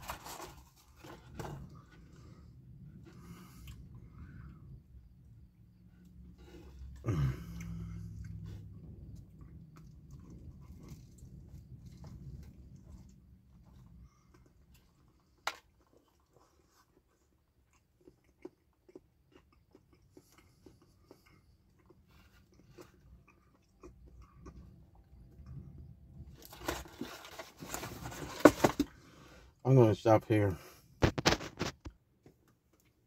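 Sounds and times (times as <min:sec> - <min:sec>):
crunching and rustling: 0:00.0 - 0:02.4, 0:26.2 - 0:29.0, 0:31.0 - 0:32.0
person chewing food: 0:01.0 - 0:26.5.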